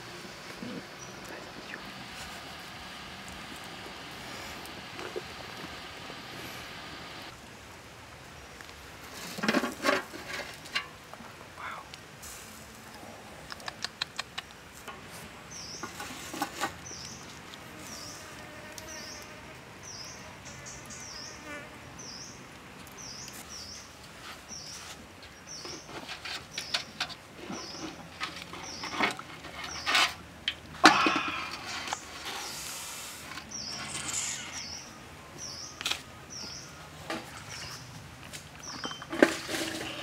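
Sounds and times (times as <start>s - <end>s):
high chirp: 33.6s - 34.9s.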